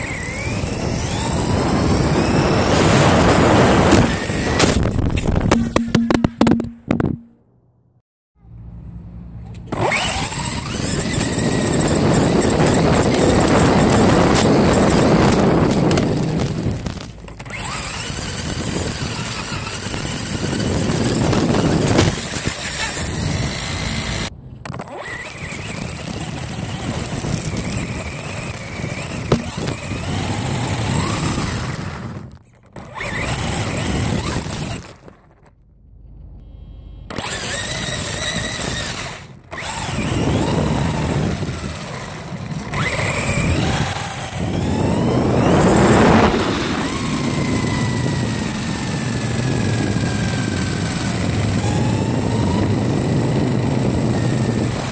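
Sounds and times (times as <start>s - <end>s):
electric motor whining: 0.0s - 7.0s, 9.7s - 35.2s, 37.1s - 54.9s
wind rushing: 43.2s - 48.7s.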